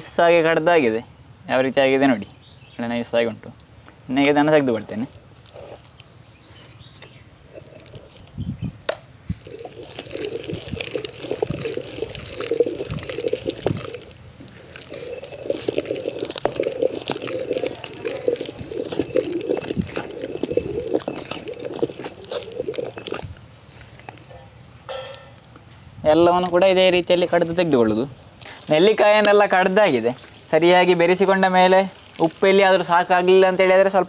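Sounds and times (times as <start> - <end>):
wet paste squelching in stone mortar: 4.9 - 8.4, 9.3 - 24.5, 28.2 - 34.0.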